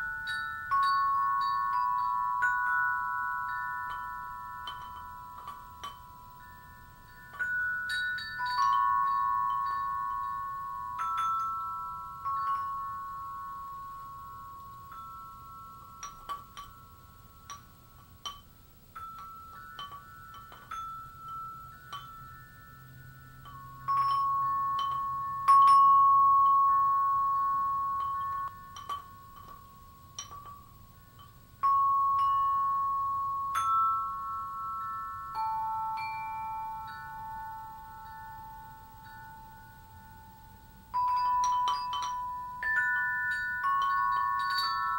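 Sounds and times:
chime music: 31.6 - 44.9.

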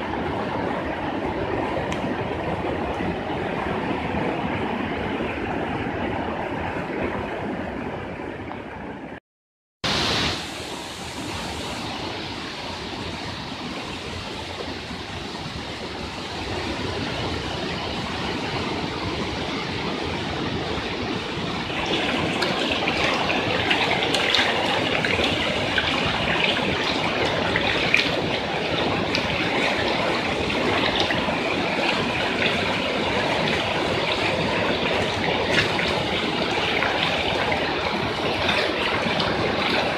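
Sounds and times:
heavy rain: 0.0 - 7.8, 9.8 - 39.9
rushing floodwater: 0.0 - 9.2, 9.8 - 39.9.

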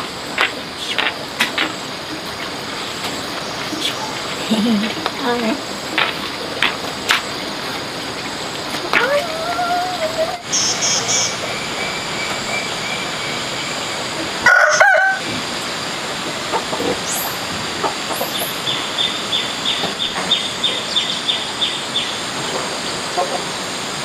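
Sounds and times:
steady background hiss: 0.0 - 24.0
small birds chirping: 8.4 - 14.1, 18.1 - 22.3
rooster crowing: 14.4 - 15.3.

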